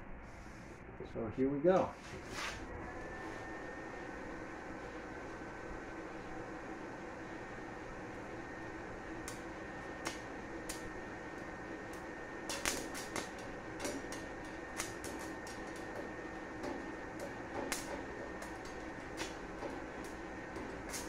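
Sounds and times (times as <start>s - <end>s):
steady hum: 0.0s - 21.0s
welding electrode clicks and crackles: 9.1s - 21.0s.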